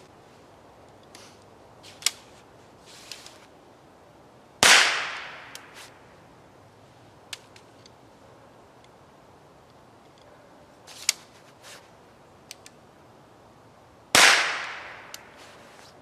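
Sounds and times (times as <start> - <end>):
rifle shot with echo: 4.6 - 5.6, 14.2 - 15.1.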